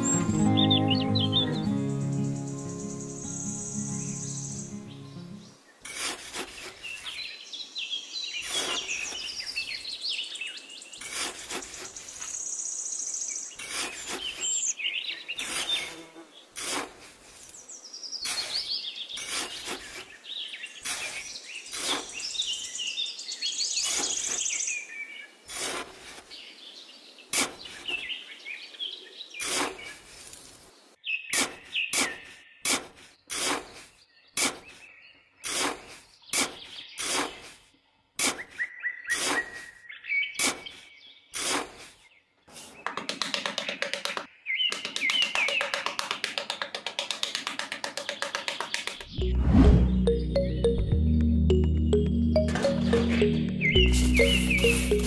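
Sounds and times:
birds chirping: 0.0s - 16.6s, 17.4s - 25.4s, 30.8s - 55.0s
metal trowel scraping damp sand: 5.8s - 7.2s, 8.4s - 9.4s, 11.0s - 12.3s, 13.5s - 14.6s, 15.4s - 17.5s, 18.2s - 20.2s, 20.8s - 22.3s, 25.5s - 26.4s, 27.3s - 28.0s, 29.4s - 30.6s, 31.4s - 39.8s, 40.4s - 42.8s.

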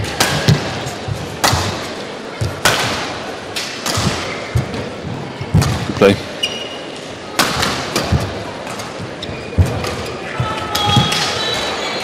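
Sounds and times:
racket hitting shuttlecock: 0.0s - 0.8s, 1.4s - 4.8s.

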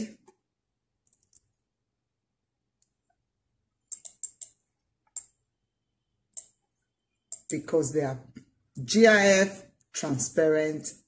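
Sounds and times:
computer mouse clicking: 1.0s - 1.6s, 3.8s - 5.4s, 6.3s - 6.6s, 7.3s - 7.6s.

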